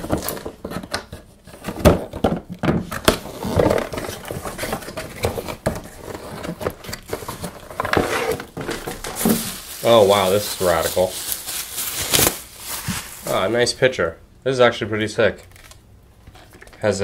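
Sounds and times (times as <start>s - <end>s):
cardboard knocks and rustling: 0.0s - 9.7s
cardboard flaps scraping: 2.9s - 13.6s
cardboard box being opened: 3.0s - 13.5s.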